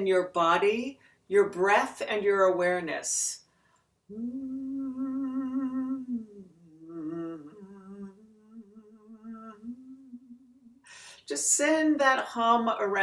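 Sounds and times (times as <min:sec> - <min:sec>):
woman humming long notes: 0:04.1 - 0:10.8.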